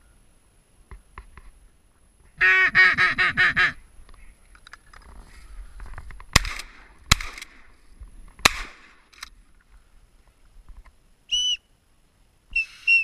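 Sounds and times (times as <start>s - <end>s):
shotgun shots: 6.3s - 7.7s, 8.4s - 9.2s
short high whistle: 11.3s - 11.7s, 12.5s - 13.0s.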